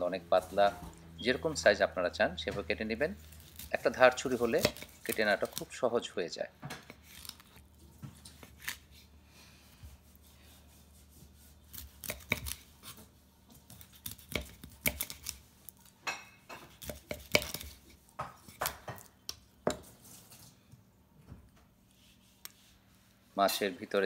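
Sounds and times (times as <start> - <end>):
knife chopping fish on wooden board: 4.4 - 5.0, 11.7 - 15.4, 16.5 - 19.9.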